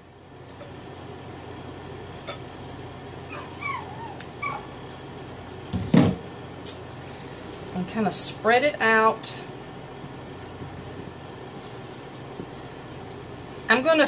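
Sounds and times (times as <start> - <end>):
squeaky whines: 3.3 - 4.7.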